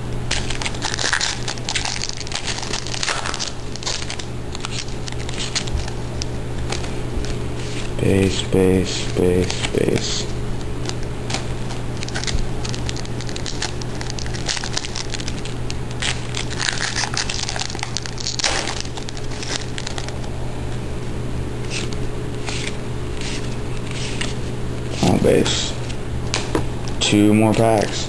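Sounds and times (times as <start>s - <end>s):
steady low hum: 0.0s - 28.0s
wrapper crinkling: 0.3s - 8.0s, 10.6s - 20.4s
cards being handled: 0.3s - 20.8s, 21.6s - 27.1s.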